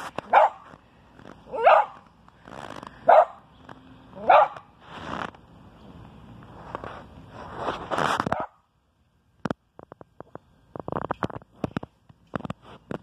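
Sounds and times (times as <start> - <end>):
dog barking: 0.3 - 0.6, 1.5 - 2.0, 3.1 - 3.4, 4.2 - 4.6.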